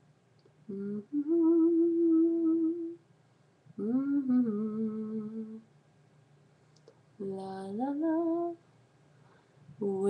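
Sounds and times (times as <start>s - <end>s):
person humming: 0.7s - 3.0s, 3.8s - 5.6s.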